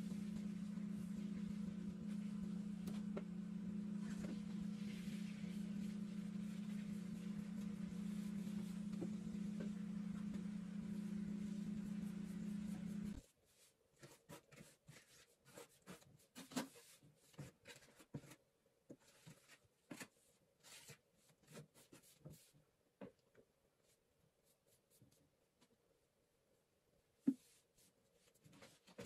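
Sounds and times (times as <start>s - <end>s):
machine hum: 0.0s - 13.2s.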